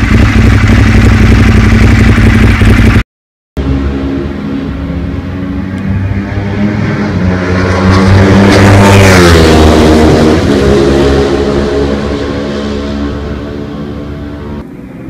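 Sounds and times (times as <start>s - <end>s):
motorcycle passing at speed: 3.6s - 15.0s.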